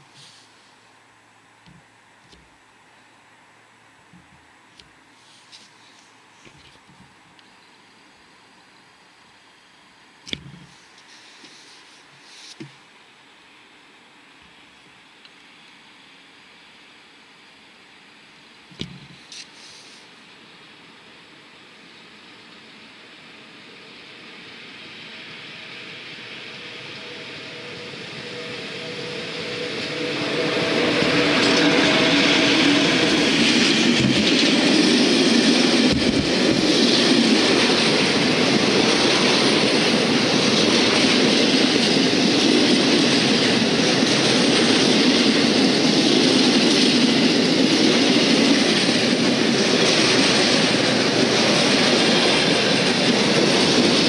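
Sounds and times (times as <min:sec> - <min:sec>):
freight train wheels rumbling on rail: 0:21.9 - 0:54.0.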